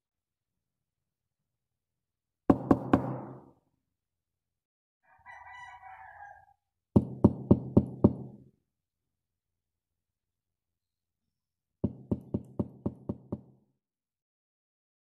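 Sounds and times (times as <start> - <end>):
knocking on a door: 2.5 - 3.5, 7.0 - 8.4, 11.8 - 13.6.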